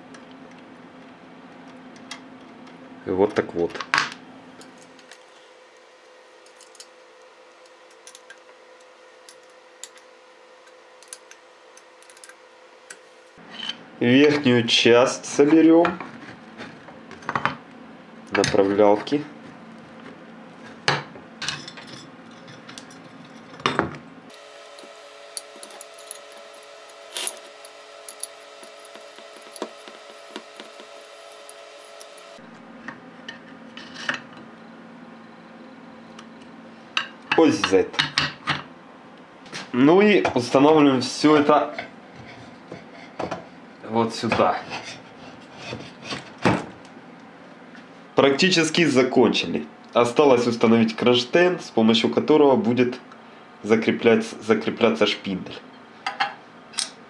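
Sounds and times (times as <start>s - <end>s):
faint hum: 0.0s - 38.0s.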